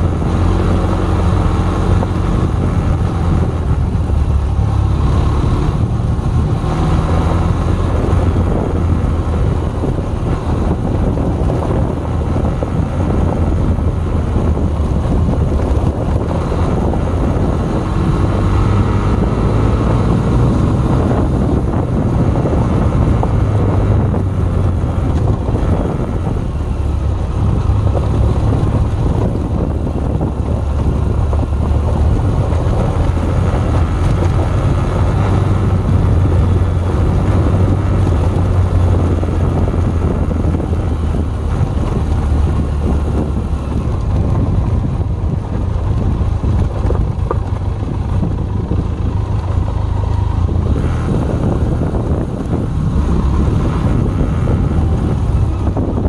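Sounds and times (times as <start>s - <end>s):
motorcycle engine revving: 0.0s - 56.0s
wind noise on microphone: 0.0s - 56.0s.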